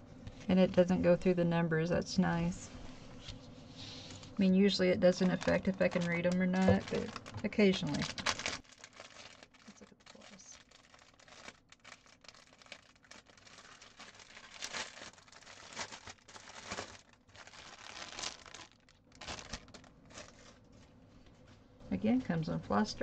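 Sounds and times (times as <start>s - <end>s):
plastic bag crinkling: 4.0s - 21.4s.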